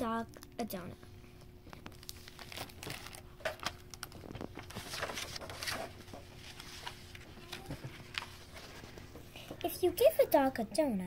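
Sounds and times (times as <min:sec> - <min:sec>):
plastic crinkling and light clicks: 0:01.4 - 0:09.0
book pages turning in plastic jacket: 0:01.4 - 0:09.2.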